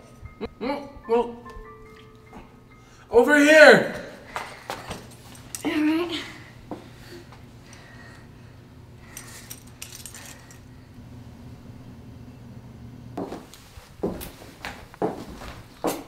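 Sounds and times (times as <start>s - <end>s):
steady low hum: 0.0s - 16.0s
faint clinks: 4.8s - 6.0s, 9.0s - 10.8s.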